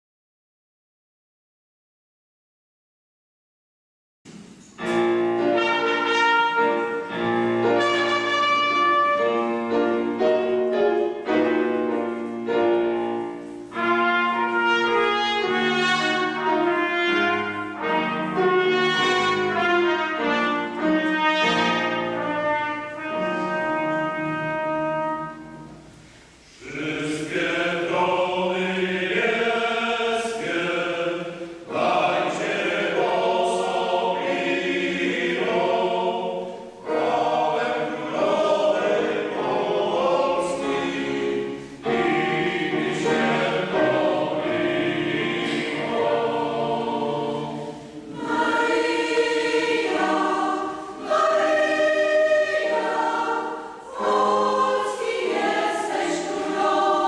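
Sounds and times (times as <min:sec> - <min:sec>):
mixed choir singing: 0:04.8 - 0:25.7, 0:26.5 - 0:57.0
trumpet melody: 0:04.9 - 0:26.0, 0:36.8 - 0:57.0.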